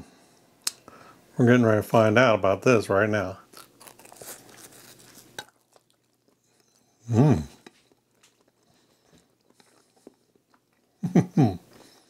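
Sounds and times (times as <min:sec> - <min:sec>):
crust crackling: 0:03.2 - 0:11.0
man chewing food: 0:03.4 - 0:12.0
man humming mmm: 0:07.0 - 0:07.6, 0:11.0 - 0:11.7.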